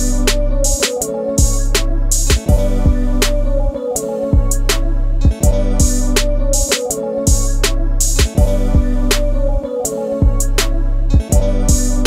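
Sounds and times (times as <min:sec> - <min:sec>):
deep bass line: 0:00.0 - 0:00.8, 0:01.4 - 0:06.7, 0:07.3 - 0:09.6, 0:10.2 - 0:12.0
steady drum beat: 0:00.0 - 0:03.2, 0:04.4 - 0:09.0, 0:11.2 - 0:12.0.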